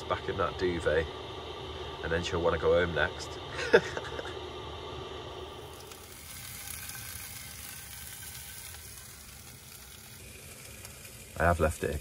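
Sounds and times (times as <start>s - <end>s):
sausages sizzling in a pan: 5.4s - 12.0s.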